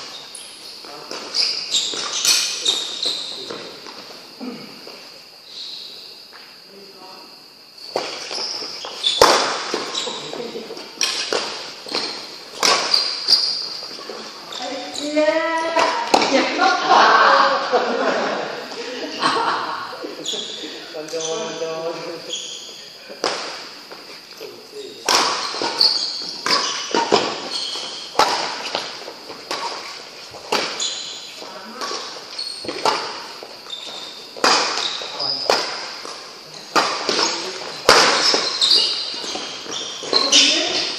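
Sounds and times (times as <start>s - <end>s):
shoe squeaks on court floor: 0.0s - 4.0s, 7.8s - 16.2s, 20.1s - 40.9s
rackets smacking shuttlecock: 9.0s - 10.2s, 11.0s - 14.0s, 25.0s - 40.9s
racket striking shuttlecock: 12.6s - 13.6s, 25.0s - 28.9s, 34.4s - 39.4s.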